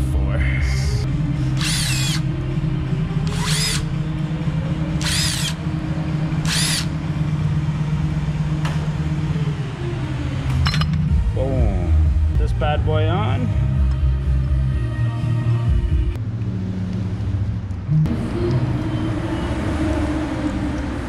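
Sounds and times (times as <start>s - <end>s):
background music hum: 0.0s - 21.0s
cordless driver whining: 1.5s - 2.3s, 3.2s - 3.9s, 5.0s - 5.6s, 6.4s - 7.0s.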